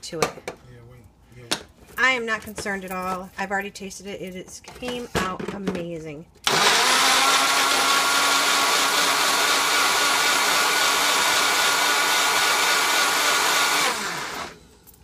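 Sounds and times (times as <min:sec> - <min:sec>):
blender motor whirring: 0:06.4 - 0:14.6.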